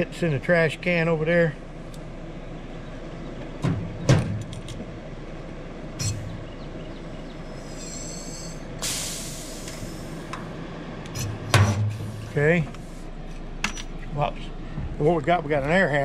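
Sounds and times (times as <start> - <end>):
low hum: 0.0 - 16.0
high squeal: 7.5 - 8.7
hissing air: 7.5 - 10.4.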